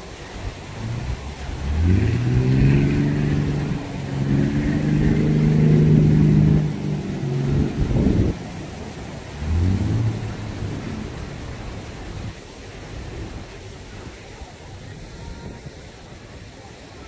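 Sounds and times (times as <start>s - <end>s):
motor engine revving: 0.6s - 12.3s.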